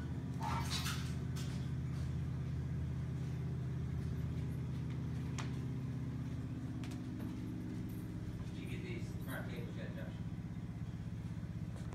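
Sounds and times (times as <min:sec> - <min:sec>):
low mechanical hum: 0:00.0 - 0:11.9.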